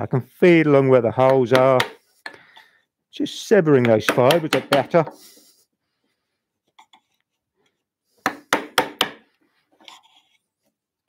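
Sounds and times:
mallet striking chisel: 1.2 - 2.0, 3.8 - 5.0, 8.2 - 9.2.

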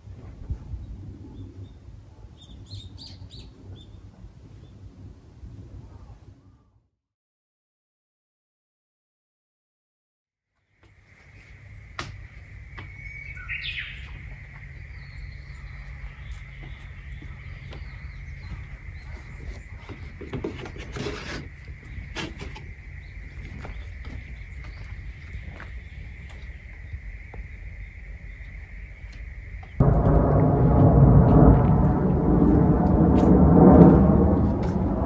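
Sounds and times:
steady low rumble: 14.0 - 20.2, 22.8 - 35.0.

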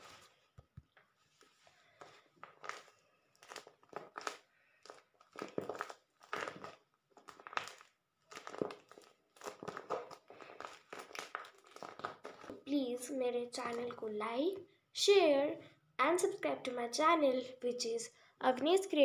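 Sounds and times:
taped paper squishy crinkling: 1.2 - 12.8.

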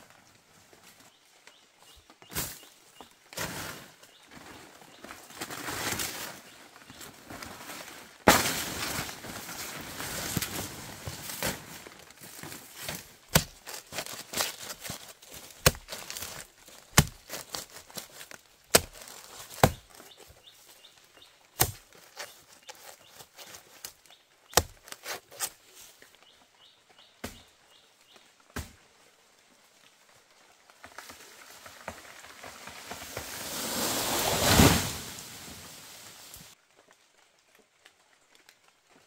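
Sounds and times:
sharp chopping blows: 15.6 - 19.9.

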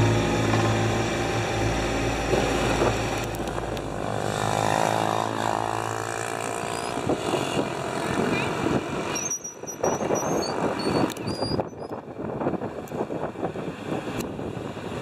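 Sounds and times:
motorbike engine running: 0.0 - 6.9.

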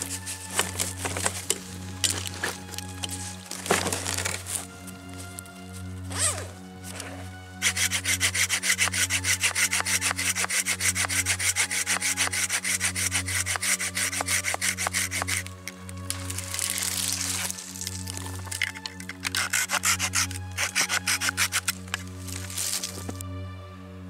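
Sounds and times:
hand saw cutting wood: 0.0 - 4.6, 6.2 - 23.2
handling noise: 0.0 - 7.4.

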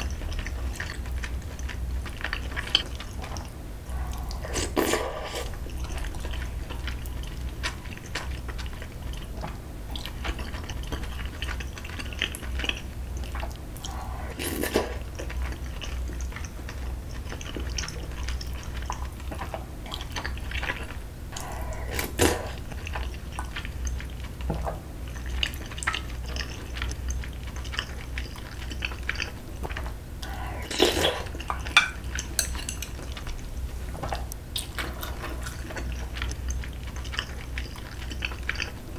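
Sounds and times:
chewing: 0.0 - 38.9
low hum: 3.2 - 7.6.

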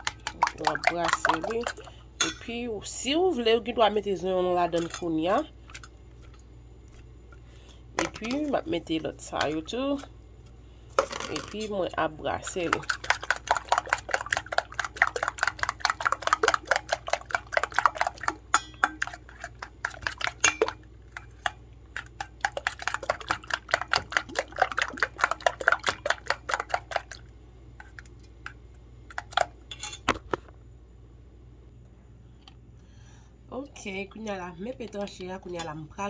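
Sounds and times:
eggs beaten in a metal bowl: 0.0 - 6.4, 7.9 - 10.1, 10.9 - 29.6.

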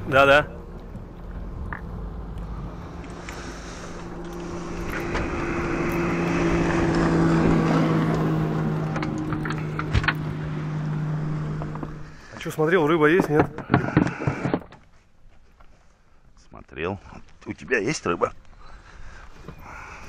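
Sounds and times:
outboard motor humming: 0.0 - 12.4.

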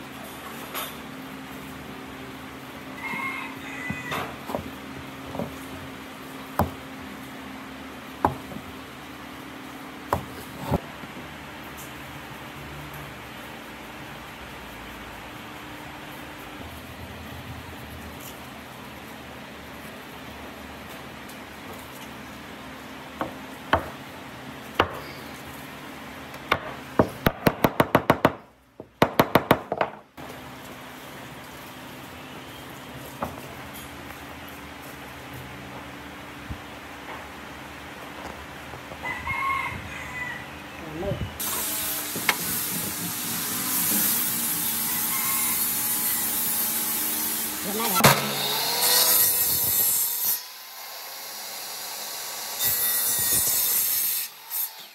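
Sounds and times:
hammer tapping on wood: 6.6 - 6.8.

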